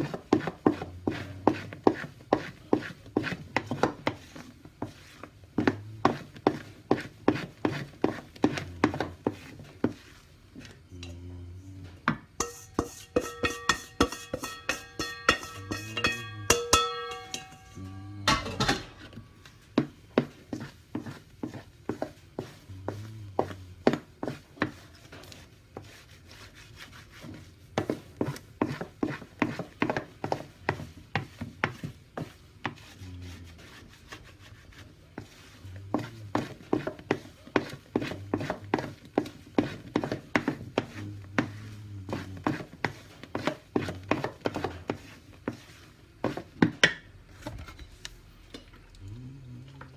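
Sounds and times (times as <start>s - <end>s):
spatula scraping metal bowl: 12.4s - 46.5s.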